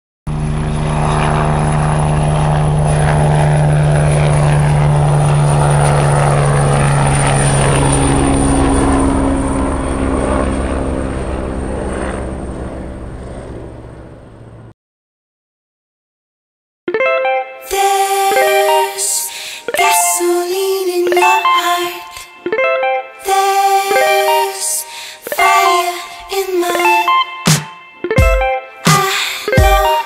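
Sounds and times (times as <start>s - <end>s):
drone propellers buzzing: 0.3s - 14.7s.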